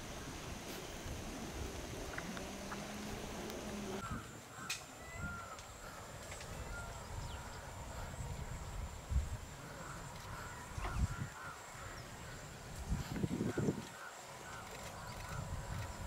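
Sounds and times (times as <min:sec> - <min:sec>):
low steady hum: 0:00.0 - 0:04.2
bird calls: 0:00.0 - 0:08.2, 0:09.6 - 0:16.0
high insect drone: 0:00.0 - 0:16.0.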